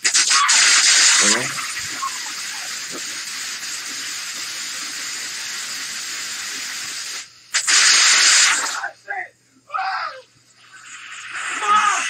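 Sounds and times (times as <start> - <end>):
fountain fireworks hissing: 0.0 - 8.9, 10.6 - 12.0.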